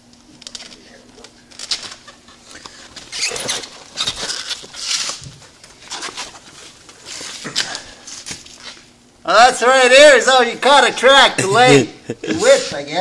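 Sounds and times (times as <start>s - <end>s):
scraping and rustling on rubber: 2.3s - 8.9s.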